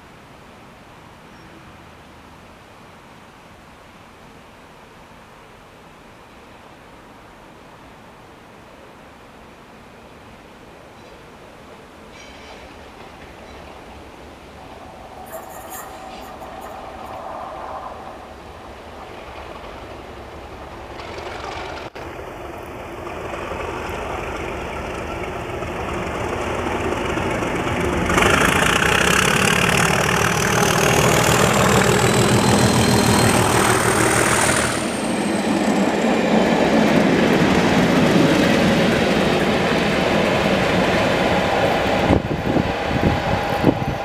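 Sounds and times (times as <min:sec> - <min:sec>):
diesel locomotives passing: 0:11.1 - 0:44.0
turbocharger whistle: 0:30.2 - 0:35.3.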